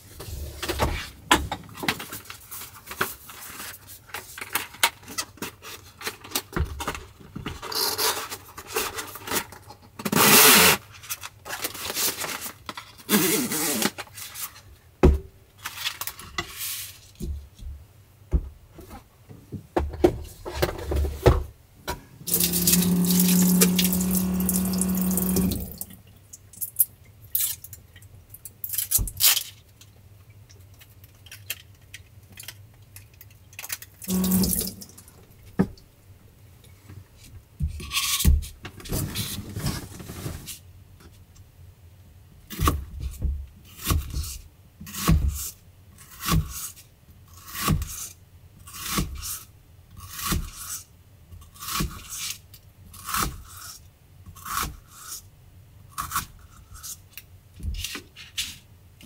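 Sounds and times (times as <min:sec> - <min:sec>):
water running at sink: 0:22.3 - 0:26.0, 0:34.1 - 0:35.1.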